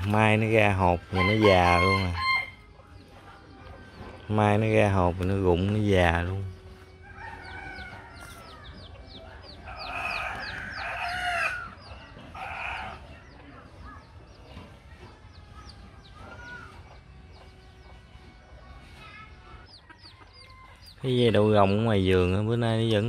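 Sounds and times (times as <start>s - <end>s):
rooster crowing: 1.1s - 2.6s, 7.0s - 8.7s, 9.7s - 11.7s.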